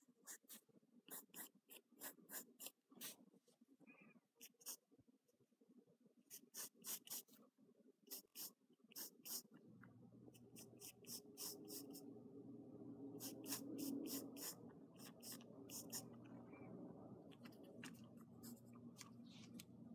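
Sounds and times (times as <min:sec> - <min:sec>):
pencil scratching on paper: 0:00.0 - 0:03.2, 0:04.4 - 0:04.8, 0:06.3 - 0:07.4, 0:08.1 - 0:09.5, 0:10.4 - 0:12.0, 0:13.2 - 0:16.2, 0:17.4 - 0:18.7
faint low hum: 0:00.0 - 0:19.9.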